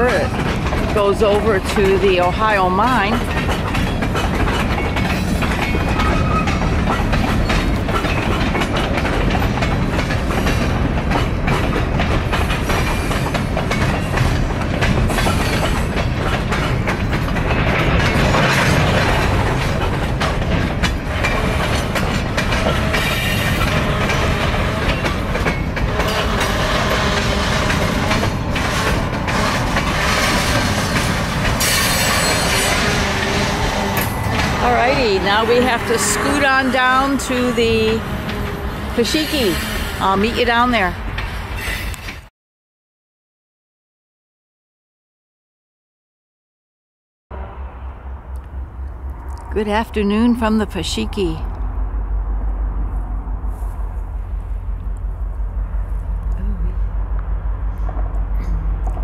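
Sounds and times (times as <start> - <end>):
train wheels rumbling over rail joints: 0.0 - 42.3, 47.3 - 59.0
train wheel squeals: 3.4 - 8.5, 21.1 - 34.4, 35.3 - 40.6, 41.3 - 42.3.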